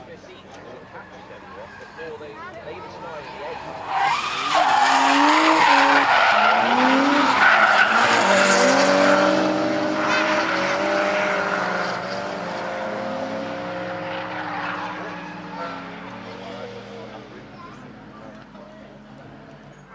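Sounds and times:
car engines revving: 0.0 - 19.9
tyre squeal: 3.3 - 9.3.

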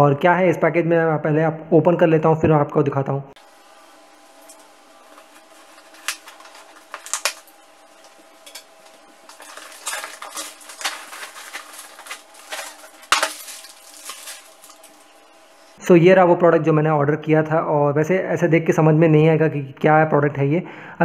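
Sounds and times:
cardboard and plastic wrap rustling: 4.5 - 15.8.

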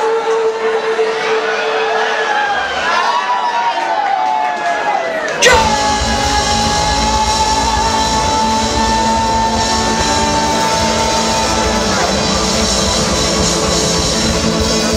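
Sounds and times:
band playing rock music: 5.4 - 14.9.

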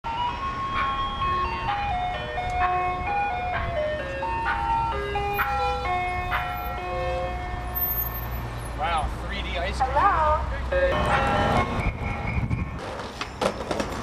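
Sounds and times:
ice cream truck chime tune: 0.0 - 8.4, 10.7 - 12.0.

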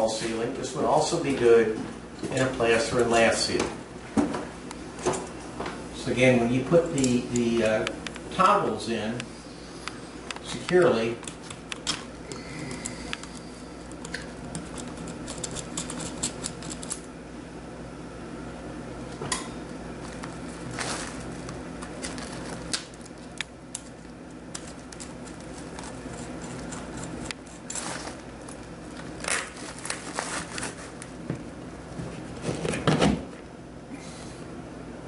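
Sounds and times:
foil tubing rustling: 20.0 - 23.3, 24.7 - 31.2.

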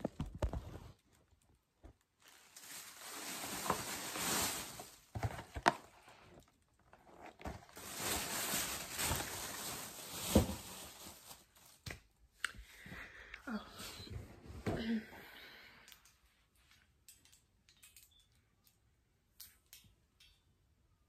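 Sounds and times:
rustling of handled objects: 0.0 - 11.9.

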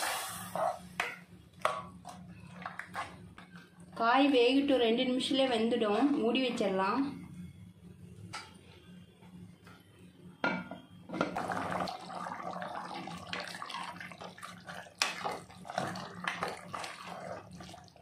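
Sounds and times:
steady low hum: 0.0 - 11.7
gravy bubbling in a pot: 11.2 - 18.0.

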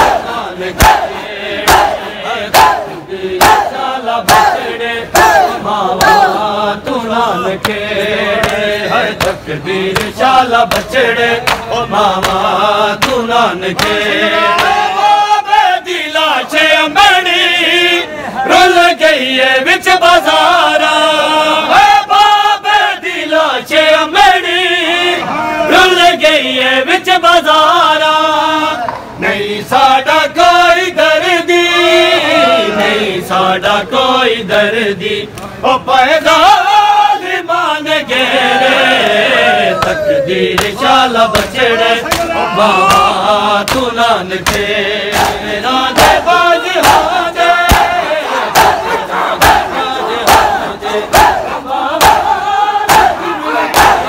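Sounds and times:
men chanting a lament in unison: 0.0 - 54.0
hands slapping chests: 8.4 - 8.6, 9.2 - 13.2, 13.8 - 14.0, 40.6 - 40.8, 41.4 - 42.3, 42.9 - 45.4.

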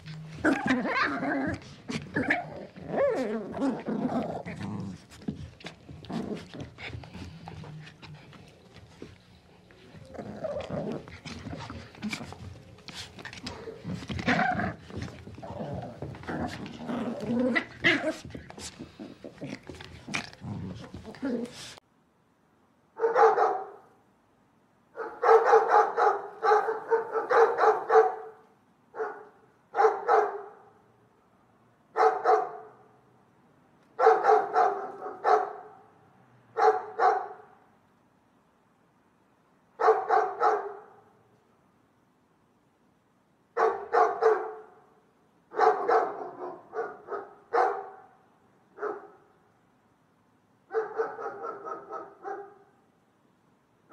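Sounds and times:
dog barking: 23.0 - 23.9, 25.0 - 30.7, 32.0 - 32.8, 34.0 - 35.9, 36.6 - 37.6, 39.8 - 41.1, 43.6 - 44.8, 45.5 - 48.2, 48.8 - 49.3, 50.7 - 52.8.

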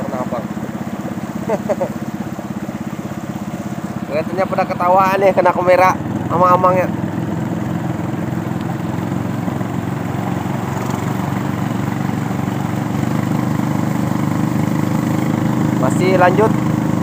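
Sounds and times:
small boat engine running: 0.0 - 17.0.

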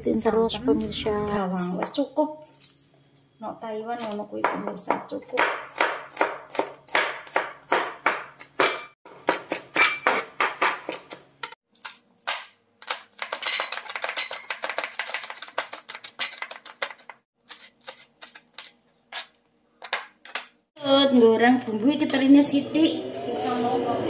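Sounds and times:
knife chopping on plastic board: 4.4 - 11.6.

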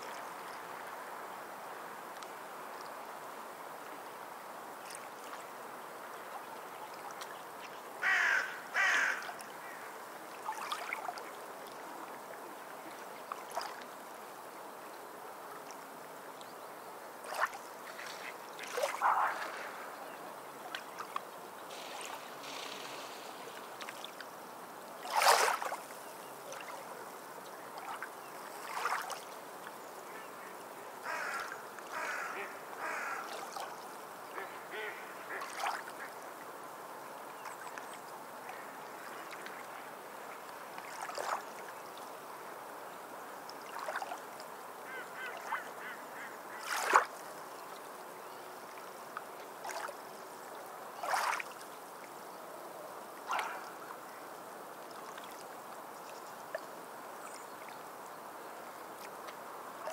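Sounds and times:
sea waves washing onto beach: 17.2 - 28.0.

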